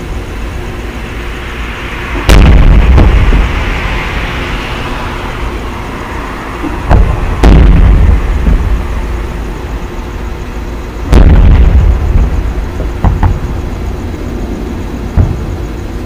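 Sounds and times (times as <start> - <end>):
rolling rumble: 0.0 - 16.0
firework booms: 2.0 - 5.7, 6.6 - 9.8, 11.0 - 16.0.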